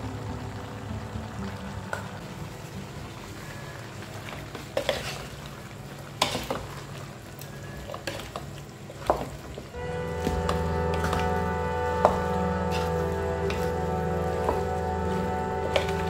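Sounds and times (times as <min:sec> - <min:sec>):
background music: 0:00.0 - 0:03.6, 0:09.8 - 0:16.0
food frying in a pan: 0:00.0 - 0:16.0.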